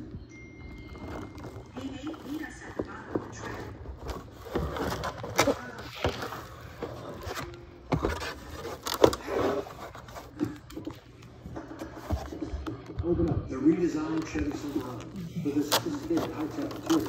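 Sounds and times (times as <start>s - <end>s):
cardboard scraping and rustling: 0.9s - 11.0s, 14.2s - 17.0s.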